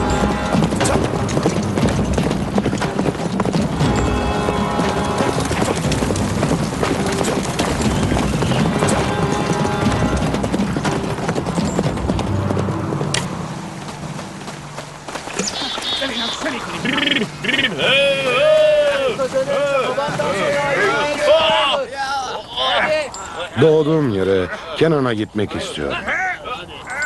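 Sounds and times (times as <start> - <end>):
film music with sustained notes: 0.0 - 21.2
horse galloping hoofbeats: 0.0 - 21.7.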